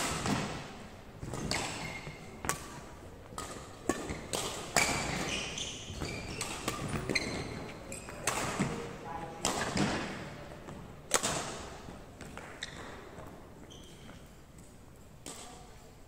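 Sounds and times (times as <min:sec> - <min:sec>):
racket hitting shuttlecock: 0:00.0 - 0:15.8
shoe squeaks on wooden floor: 0:04.8 - 0:08.2, 0:12.5 - 0:14.2.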